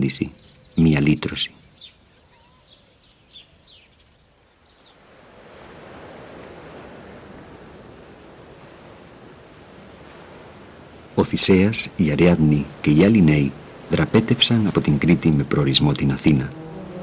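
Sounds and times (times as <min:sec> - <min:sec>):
faint bird chirps: 0:00.0 - 0:05.0
rushing sea water in ship's wake: 0:04.7 - 0:17.0.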